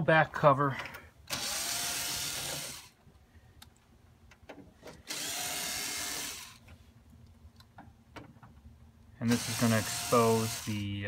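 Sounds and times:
electric screwdriver motor whine: 0:01.3 - 0:02.9, 0:05.1 - 0:06.6, 0:09.3 - 0:10.8.

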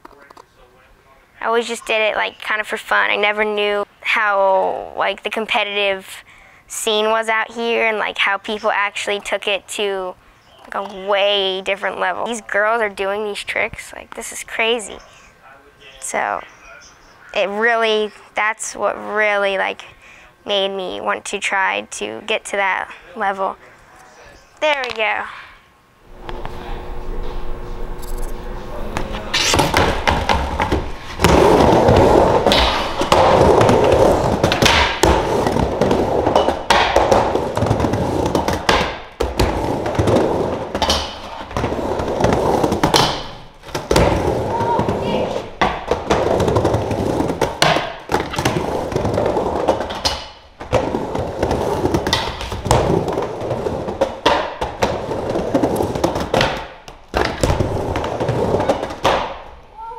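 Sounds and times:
skateboard wheels rolling on ramp: 0:26.1 - 0:59.5
skateboard knocking on ramp: 0:29.0 - 0:59.5.

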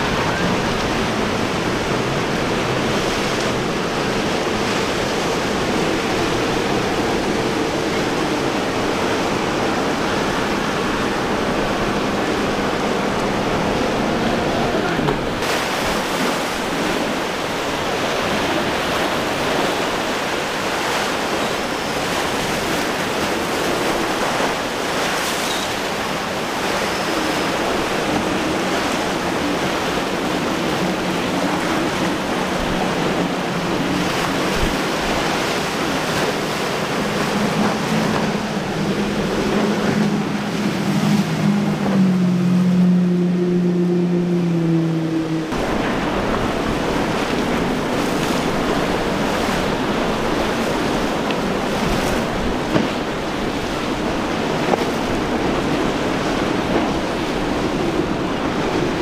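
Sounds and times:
boat engine droning: 0:00.0 - 0:59.0
surf rushing: 0:00.0 - 0:59.0
wind: 0:00.0 - 0:59.0.

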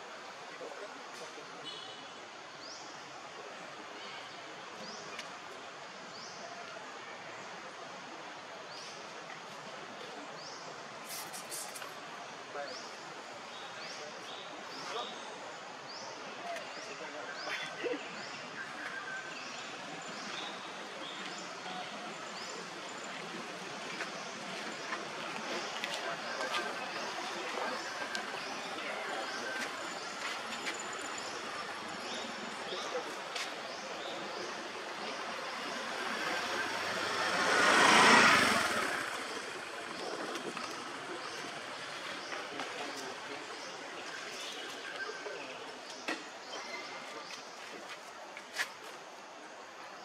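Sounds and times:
steady forest hiss: 0:00.0 - 0:50.0
vehicle engine passing by: 0:34.5 - 0:42.4.

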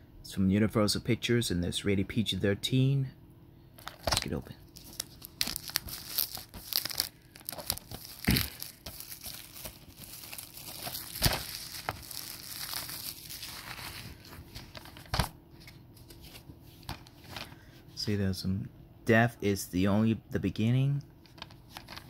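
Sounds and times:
plastic shrink wrap crinkling: 0:03.8 - 0:17.4.

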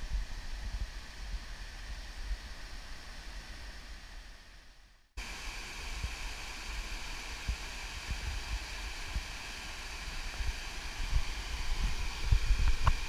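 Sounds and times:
waterfall rushing: 0:05.2 - 0:13.0.

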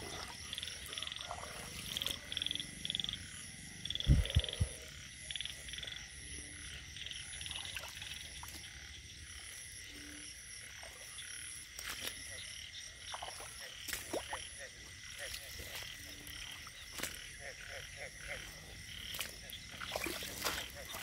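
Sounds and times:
frogs calling: 0:00.0 - 0:21.0.

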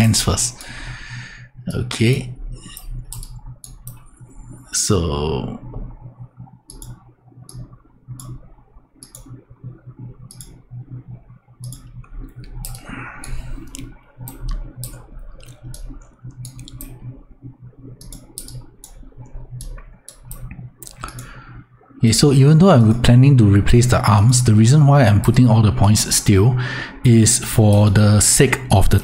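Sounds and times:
low steady hum: 0:00.0 - 0:29.0
computer mouse clicking: 0:02.6 - 0:04.2, 0:05.7 - 0:17.2, 0:17.8 - 0:21.6.

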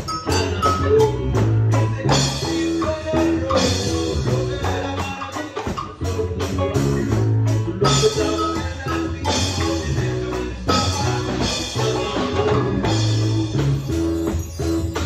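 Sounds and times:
bass line: 0:00.0 - 0:15.0
drum kit: 0:00.0 - 0:15.0
hand percussion: 0:00.0 - 0:15.0.

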